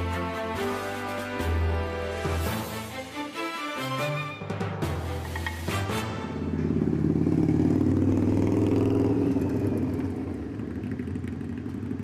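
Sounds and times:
motorcycle engine running: 5.4 - 12.0.

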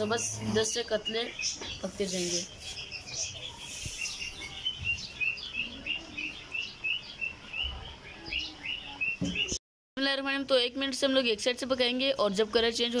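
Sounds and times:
bird chirping: 0.0 - 9.6.

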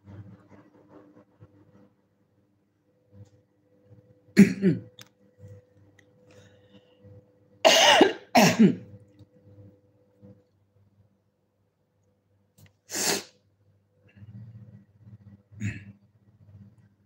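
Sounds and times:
woman coughing: 4.4 - 4.9, 7.6 - 8.9.

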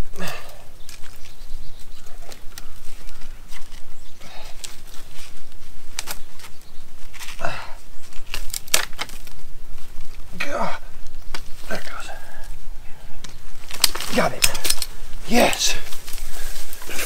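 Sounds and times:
dry brush rustling and snapping: 0.3 - 17.0
metal trap clicks and knocks: 13.7 - 15.0.

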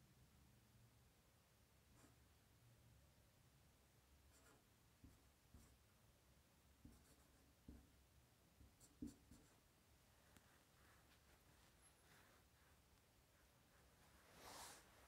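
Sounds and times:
marker writing on whiteboard: 4.3 - 5.8, 6.8 - 8.0, 8.6 - 9.6.

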